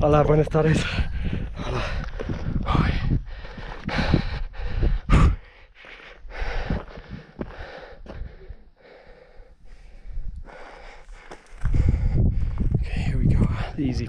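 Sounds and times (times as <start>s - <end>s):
person breathing heavily: 0.8s - 13.8s
low rumbles on microphone: 0.9s - 5.4s, 11.6s - 13.8s.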